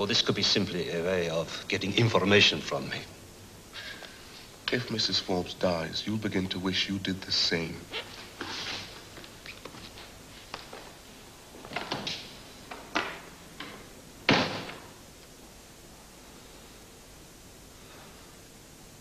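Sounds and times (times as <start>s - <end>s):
door slamming shut: 14.3s - 14.9s.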